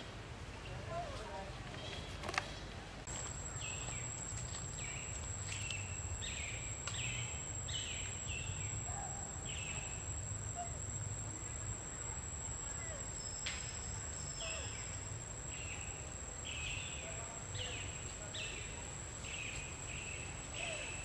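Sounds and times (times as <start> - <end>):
high-pitched insect trill: 3.1 - 18.6.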